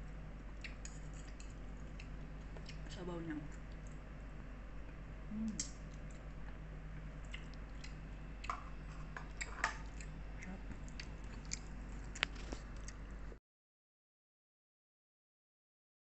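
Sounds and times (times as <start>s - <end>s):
low hum: 0.0s - 13.4s
person chewing: 0.4s - 2.9s, 5.5s - 13.4s.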